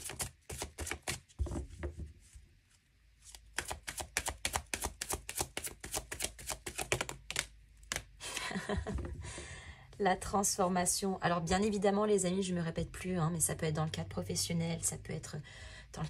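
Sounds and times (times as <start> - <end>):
cards shuffling: 0.0 - 1.3, 3.2 - 8.1.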